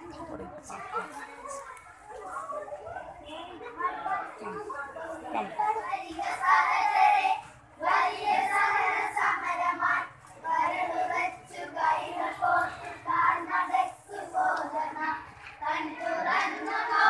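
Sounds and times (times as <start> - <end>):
children singing: 5.8 - 17.0.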